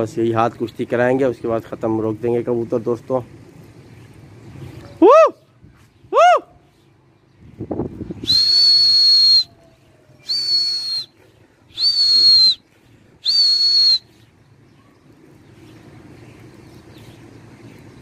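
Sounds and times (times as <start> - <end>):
high whistle blasts: 8.2 - 9.6, 10.2 - 11.1, 11.7 - 12.6, 13.2 - 14.1.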